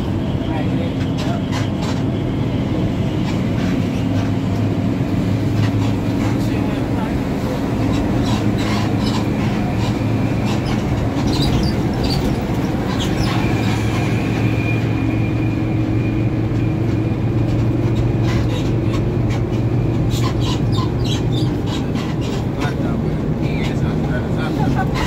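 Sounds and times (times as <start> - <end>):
bus engine and road drone: 0.0 - 25.0
body rattles and clicks: 7.8 - 14.1, 16.5 - 25.0.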